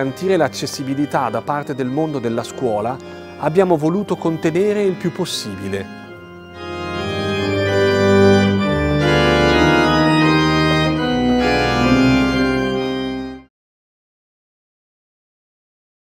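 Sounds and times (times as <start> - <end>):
pipe organ playing chords: 0.0 - 13.5.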